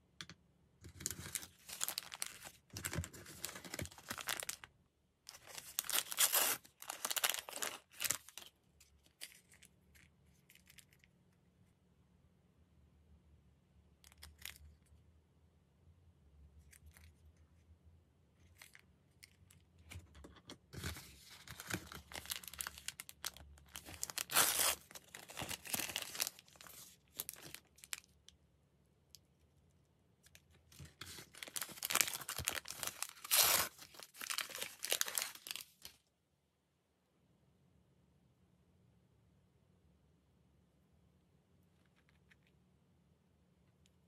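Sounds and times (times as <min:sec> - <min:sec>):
plastic wrapper tearing and crumpling: 0:00.9 - 0:04.7, 0:05.3 - 0:10.9, 0:20.8 - 0:28.2, 0:30.3 - 0:36.0.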